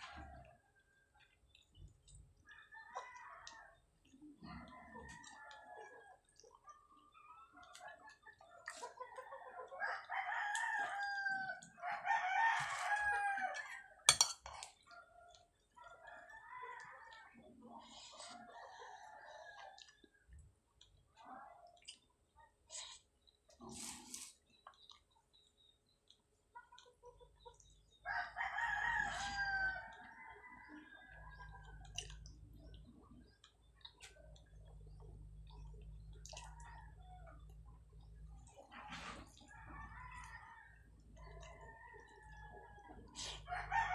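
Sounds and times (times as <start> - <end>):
person eating with hands: 31.8 - 39.3
rooster crowing: 43.5 - 43.9.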